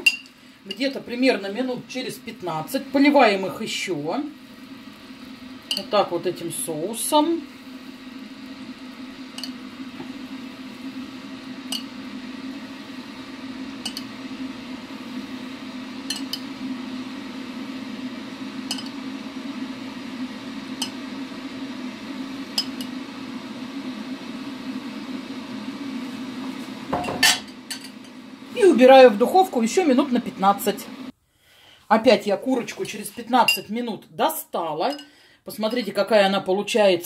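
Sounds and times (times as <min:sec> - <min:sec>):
steady low hum: 0:00.0 - 0:31.2
metal spoon clinking on pan: 0:13.8 - 0:14.1, 0:16.1 - 0:16.4.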